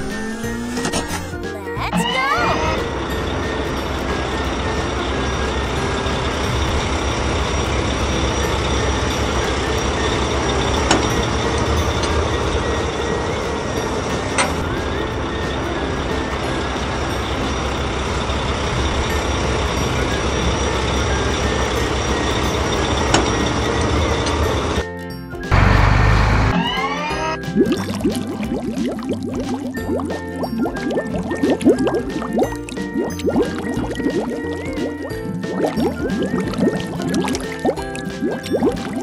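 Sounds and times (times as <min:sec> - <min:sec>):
heavy machine engine rumbling: 0:00.0 - 0:24.8, 0:25.5 - 0:27.4.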